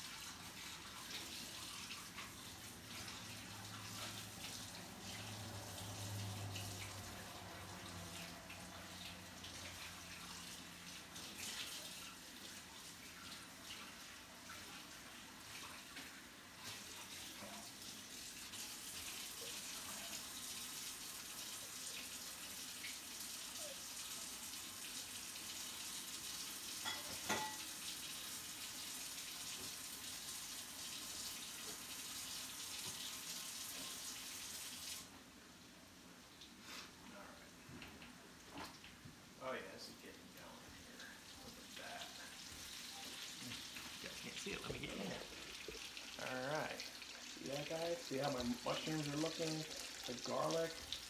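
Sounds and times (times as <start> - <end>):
mushrooms sizzling in a pan: 41.6 - 51.0.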